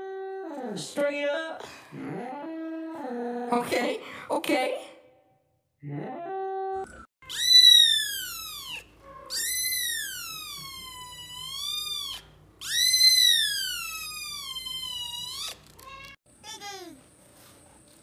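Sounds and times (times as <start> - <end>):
kitten meowing: 7.2 - 16.2.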